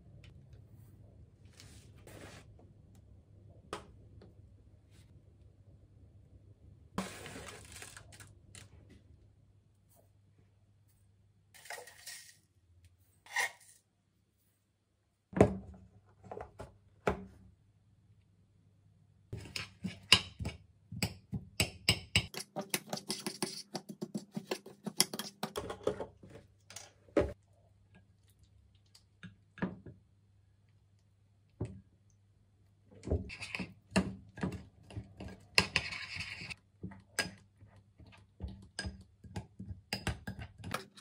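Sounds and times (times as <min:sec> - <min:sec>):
spoon scraping in glass container: 0:13.2 - 0:13.8.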